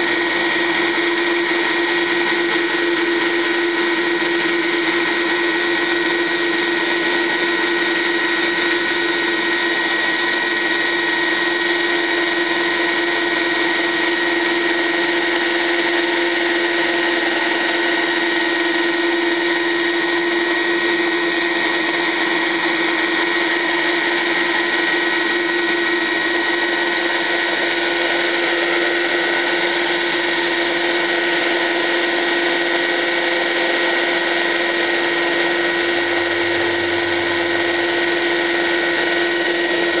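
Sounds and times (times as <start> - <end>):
helicopter turbine whine: 0.0 - 40.0.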